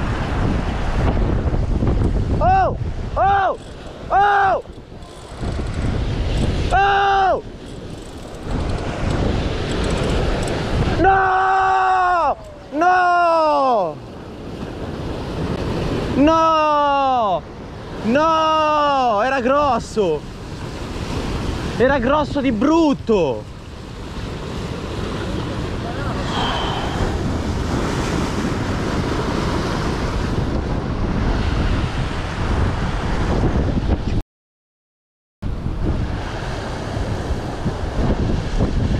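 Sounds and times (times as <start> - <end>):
wind buffeting microphone: 0.0 - 11.3, 19.6 - 34.2, 35.4 - 38.9
surf surging against rocks: 0.0 - 33.3.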